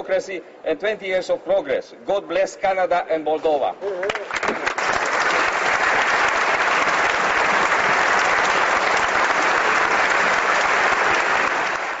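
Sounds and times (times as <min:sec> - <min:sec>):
crowd applause: 0:04.1 - 0:12.0.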